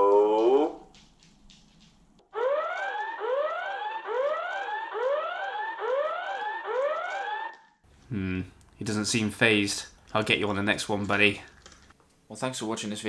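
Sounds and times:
electronic siren whoop: 0:02.4 - 0:07.7.

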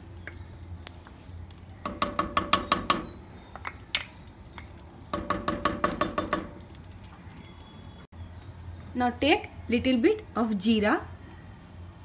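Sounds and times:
wooden spoon knocking on pot: 0:01.8 - 0:04.2, 0:05.1 - 0:06.7.

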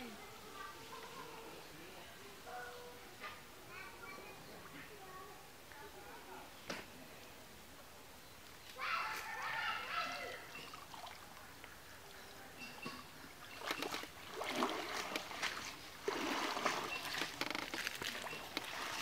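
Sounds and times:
muddy water splashing: 0:10.1 - 0:19.0.

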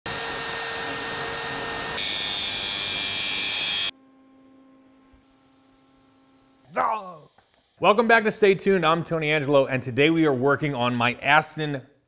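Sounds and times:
angle grinder grinding steel: 0:00.1 - 0:03.9.

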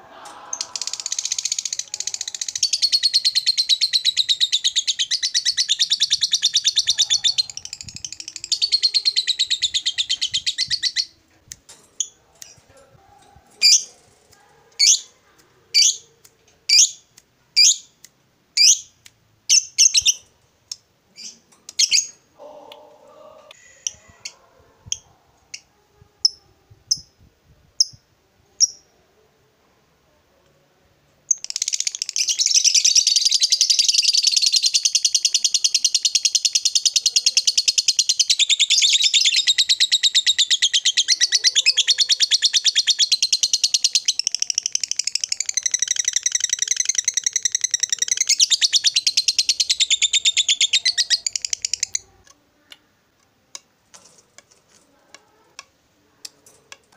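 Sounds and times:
lovebird chirps: 0:00.3 - 0:11.2, 0:13.6 - 0:15.1, 0:15.7 - 0:16.1, 0:16.7 - 0:18.0, 0:18.6 - 0:20.3, 0:21.2 - 0:22.9, 0:31.3 - 0:52.1
lovebird chattering trill: 0:00.6 - 0:11.2, 0:31.3 - 0:52.1.

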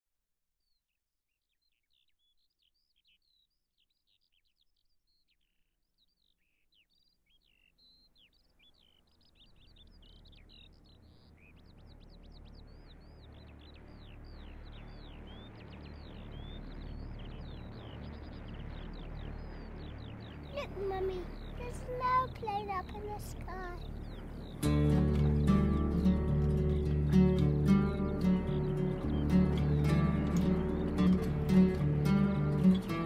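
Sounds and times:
birds chirping: 0:01.5 - 0:33.0
low rumble: 0:09.6 - 0:33.0.

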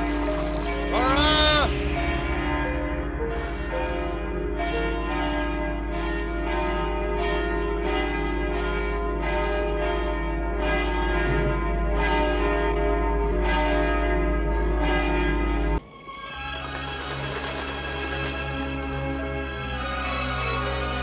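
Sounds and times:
constant low hum: 0:00.0 - 0:08.8
church bells ringing: 0:00.0 - 0:21.0.

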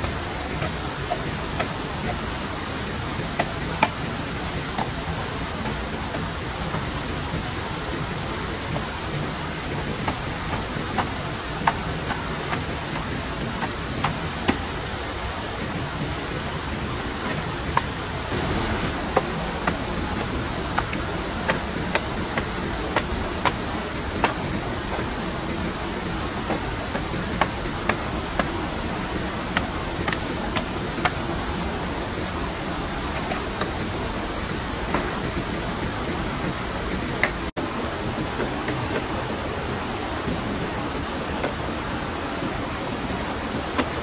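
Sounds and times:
sharp taps and knocks: 0:00.0 - 0:02.3, 0:03.1 - 0:14.8, 0:15.7 - 0:31.4, 0:34.6 - 0:37.5
steady hiss: 0:00.0 - 0:44.0.

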